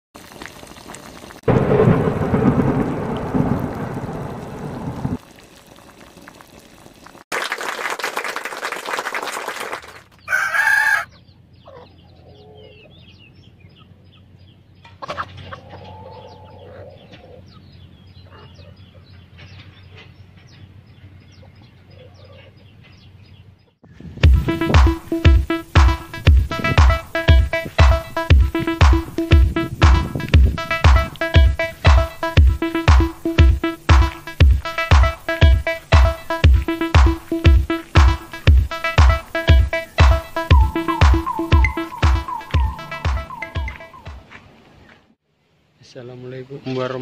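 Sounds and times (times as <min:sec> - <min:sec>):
loud rumble: 0:01.5 - 0:05.2
rooster crow: 0:10.2 - 0:11.1
chickens clucking: 0:10.3 - 0:23.1.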